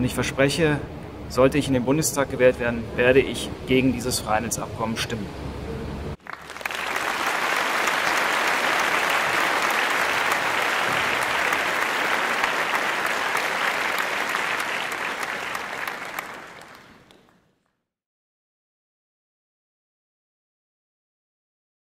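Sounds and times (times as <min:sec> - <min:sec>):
crowd applauding: 0:06.2 - 0:17.4.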